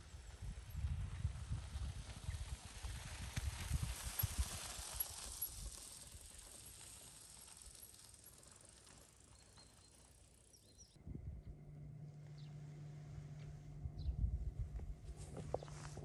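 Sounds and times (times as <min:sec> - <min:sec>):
bicycle tyres crunching on gravel: 0:00.0 - 0:11.0, 0:15.1 - 0:16.0
faint high chirps: 0:09.3 - 0:11.0.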